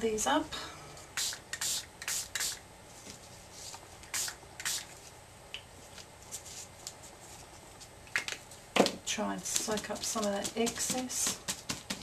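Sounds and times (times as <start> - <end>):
spray bottle hissing spritzes: 1.2 - 2.6.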